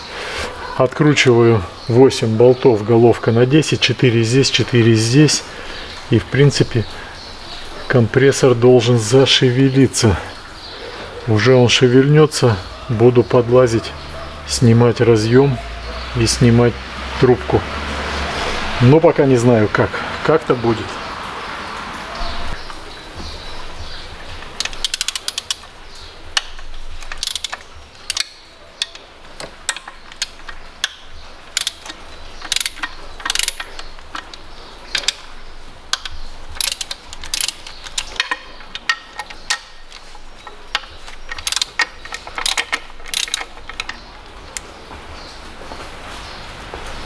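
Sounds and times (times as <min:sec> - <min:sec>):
socket ratchet clicking: 0:24.4 - 0:44.7
tool tapping on metal: 0:36.0 - 0:44.1.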